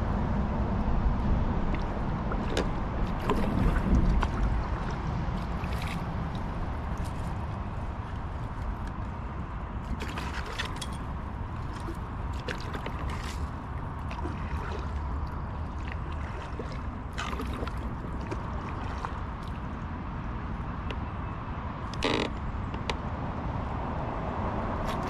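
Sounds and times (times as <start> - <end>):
steady low rumble: 0.0 - 25.0
paddle splashing in water: 1.7 - 9.2, 9.8 - 19.8, 24.8 - 25.0.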